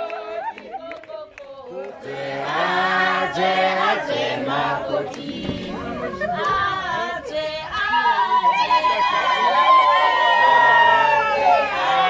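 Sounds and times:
women singing in chorus: 0:00.0 - 0:09.6.

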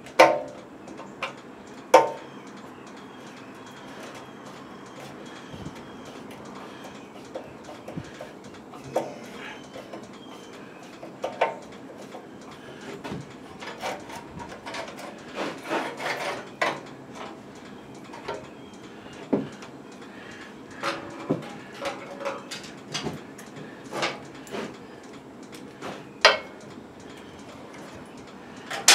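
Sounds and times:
tools and metal parts clinking: 0:20.8 - 0:24.4, 0:28.7 - 0:28.9.

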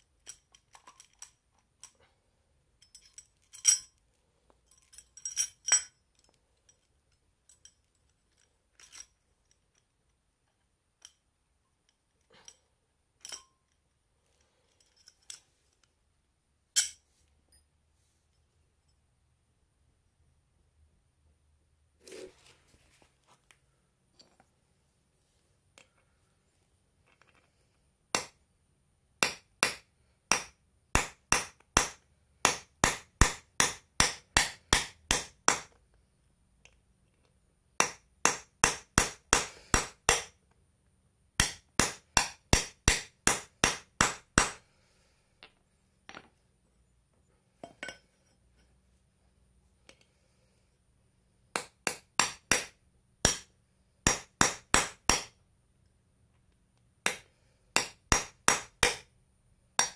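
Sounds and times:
hammer striking metal: 0:29.2 - 0:35.7.

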